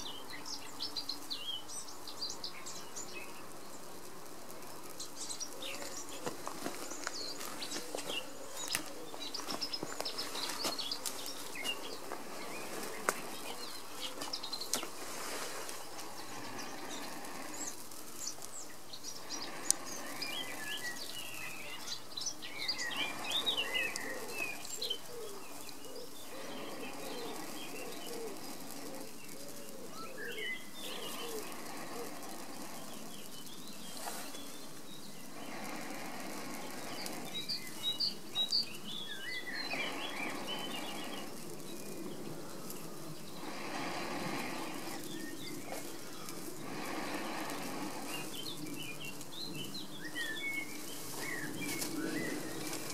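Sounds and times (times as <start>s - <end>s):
songbirds chirping: 0.0s - 52.9s
person blowing on tinder: 11.3s - 38.7s, 39.5s - 49.3s.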